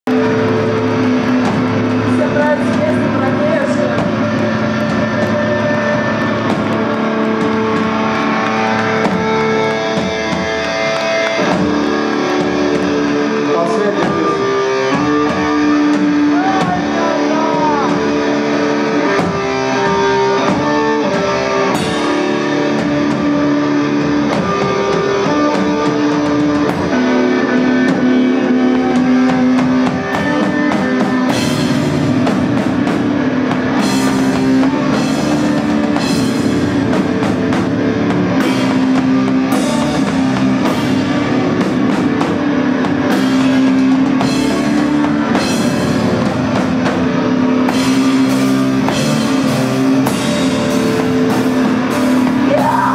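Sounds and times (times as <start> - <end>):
guitars holding long notes: 0.0 - 52.9
live rock band playing: 0.0 - 52.9
drum kit and cymbal hits: 11.4 - 52.9.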